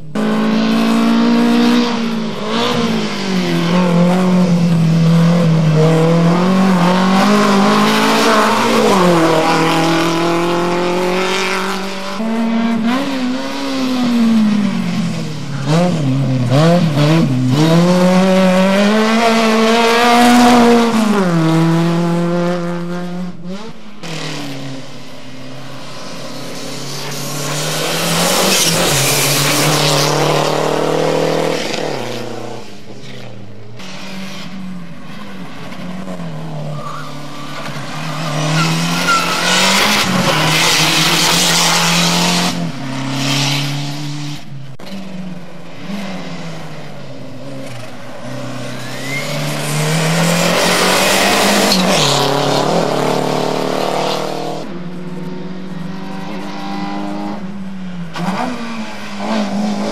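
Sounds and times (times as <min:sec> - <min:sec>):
race car engines revving: 0:00.0 - 0:59.9
tyre squeals: 0:36.6 - 0:40.2, 0:48.7 - 0:50.0.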